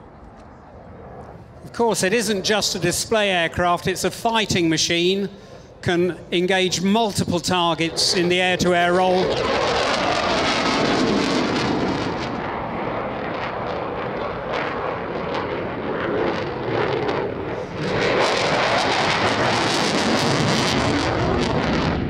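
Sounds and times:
crackling jet engine roar: 0.0s - 22.0s.

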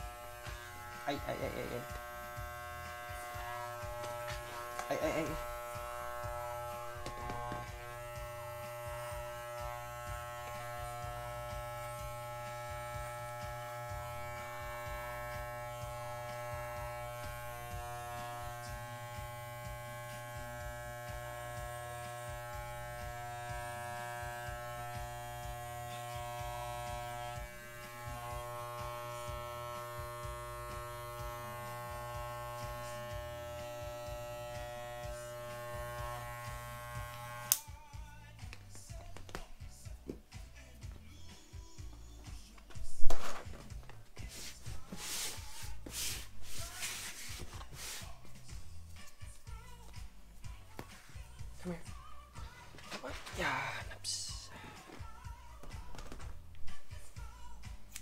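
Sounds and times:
electric hair clippers buzzing: 0.0s - 37.7s.

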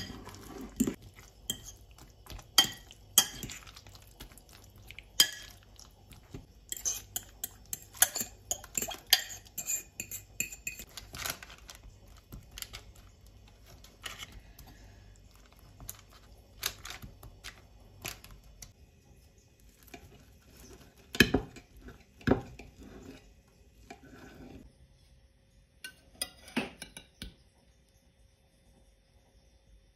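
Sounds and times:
fork stirring in glass bowl: 0.0s - 18.2s, 19.8s - 24.6s
tapping and spreading in pan: 0.0s - 18.8s, 19.8s - 24.6s.

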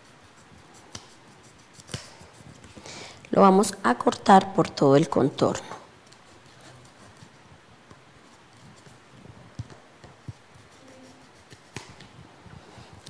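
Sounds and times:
scissors snipping foam: 0.9s - 2.3s.

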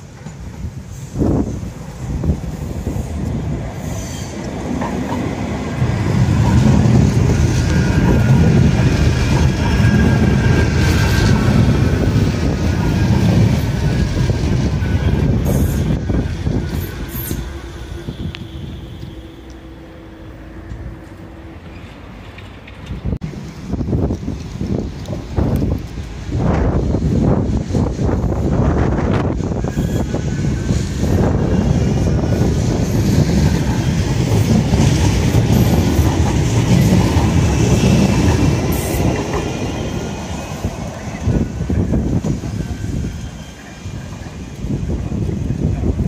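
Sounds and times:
electric whine of tram: 0.0s - 46.0s
steady tram hum: 0.0s - 46.0s
tram wheels rumbling on rails: 0.0s - 46.0s.

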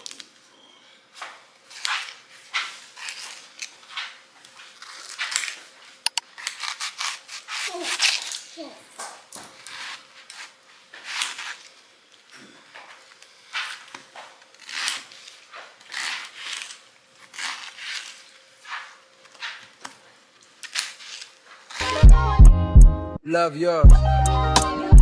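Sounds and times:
knife slicing onion: 6.1s - 8.5s.

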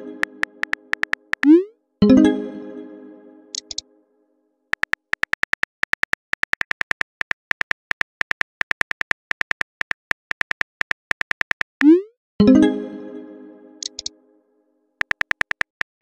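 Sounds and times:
phone keyboard clicks: 0.2s - 1.5s, 3.6s - 3.8s, 4.7s - 11.7s, 13.8s - 14.1s, 15.0s - 16.0s.

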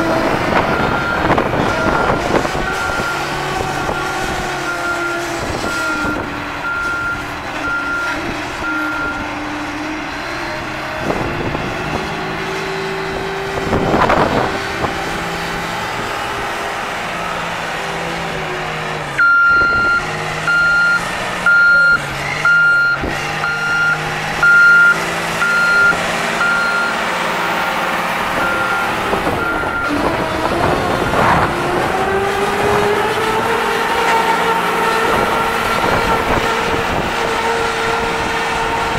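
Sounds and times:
diesel engine running: 0.0s - 38.9s
backup alarm beeping: 19.2s - 27.0s, 28.4s - 30.0s.

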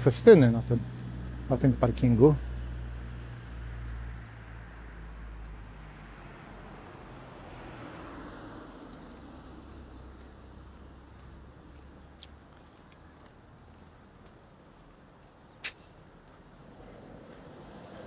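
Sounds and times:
low engine hum: 0.0s - 15.1s
passing car and tyre noise: 0.0s - 18.0s.

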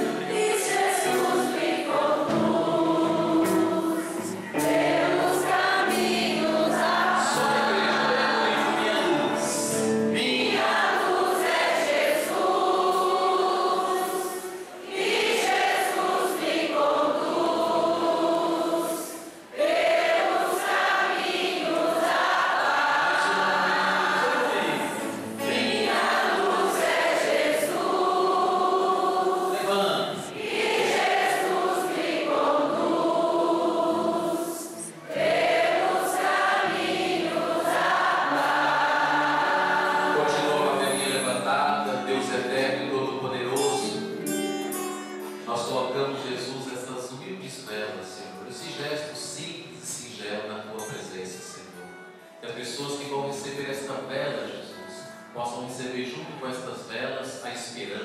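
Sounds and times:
congregation singing a hymn: 0.0s - 44.2s.

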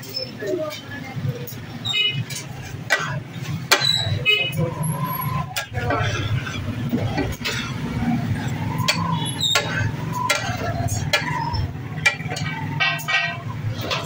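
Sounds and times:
metal spatula scraping iron pan: 8.8s - 14.0s.

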